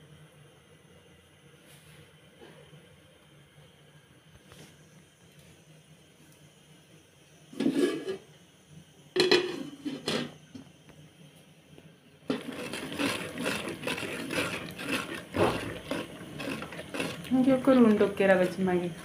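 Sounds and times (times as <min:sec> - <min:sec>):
stirring scraping strokes: 0:07.6 - 0:08.2, 0:12.3 - 0:19.0
metal pot and plate clattering: 0:09.2 - 0:10.4
vegetables sizzling in pot: 0:12.3 - 0:19.0.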